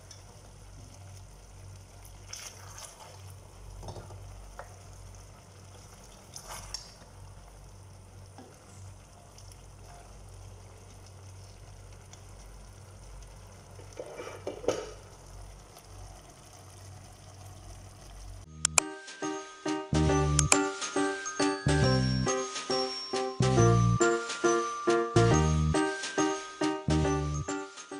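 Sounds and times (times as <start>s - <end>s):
sauce sizzling faintly: 0.0s - 18.7s
spatula scraping a pot: 14.0s - 14.5s.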